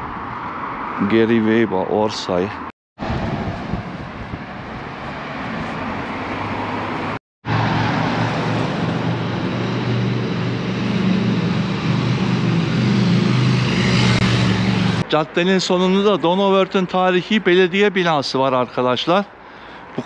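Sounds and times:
street noise: 0.0 - 20.0
vehicle engine humming: 3.0 - 15.0.

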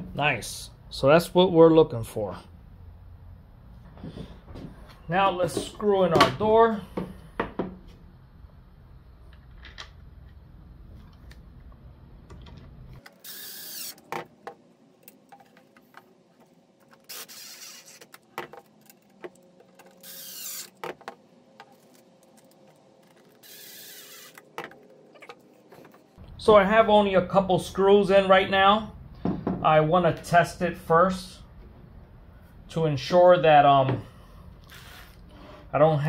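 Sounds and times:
drill driving screws into wood: 13.1 - 14.0, 17.1 - 18.2, 20.0 - 20.8, 23.4 - 24.4.

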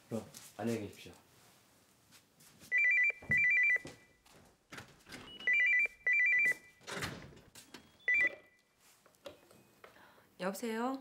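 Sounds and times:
soft rustle: 0.1 - 2.8
landline telephone ringing: 2.7 - 3.9, 5.3 - 6.8, 8.0 - 8.6.

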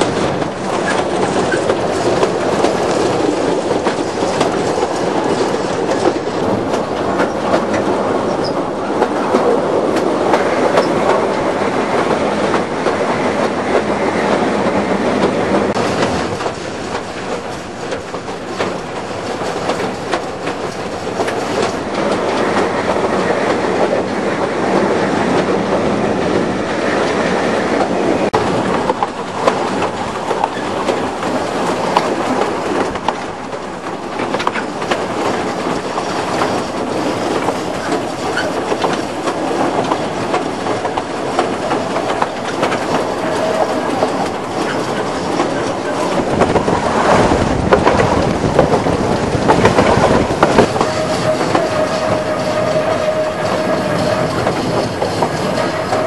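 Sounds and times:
train wheels clattering on rails: 0.0 - 56.0.

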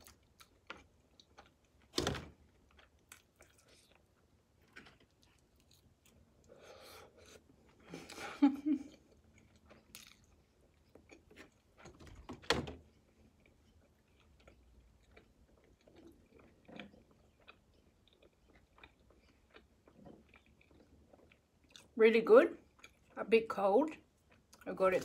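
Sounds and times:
person chewing with wet clicks: 0.0 - 1.9, 2.5 - 6.6, 8.9 - 12.0, 13.0 - 22.0, 22.6 - 23.2, 23.9 - 25.0.

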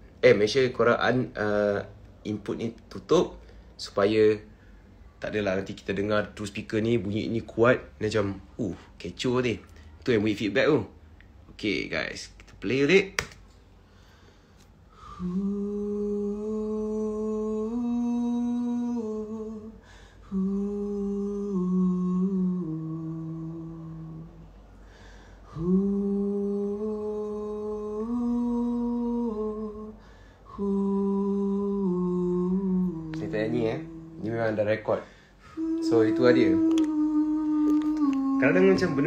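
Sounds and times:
man humming through speakers: 35.5 - 39.0.

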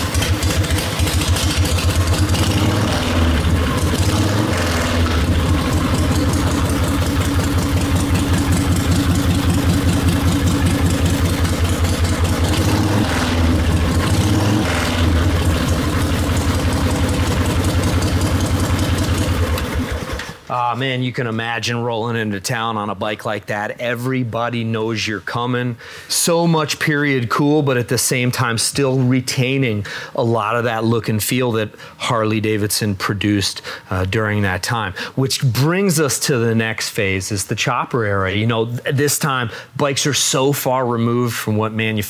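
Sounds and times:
motorcycle throttle blips: 0.0 - 20.3
motorcycle engine idling: 0.0 - 20.5.

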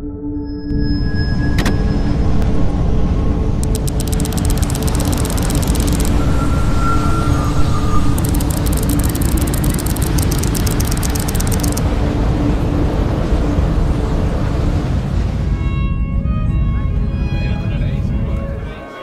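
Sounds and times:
low hum: 0.7 - 17.1
rushing noise: 3.6 - 15.5.

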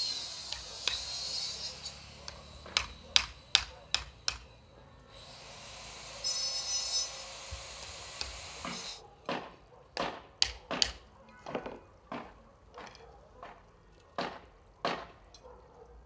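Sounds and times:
sharp knocks: 9.3 - 12.4, 14.2 - 15.2.

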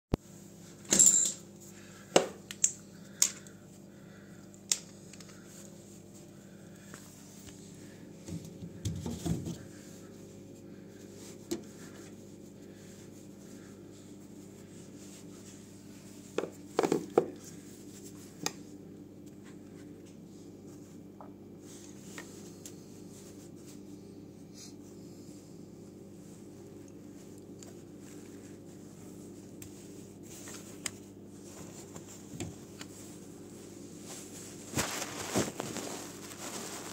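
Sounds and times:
steady low hum: 0.2 - 36.9.

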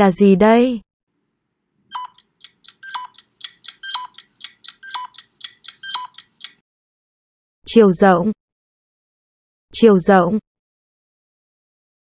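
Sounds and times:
rapid clicky beeps: 1.9 - 6.6.

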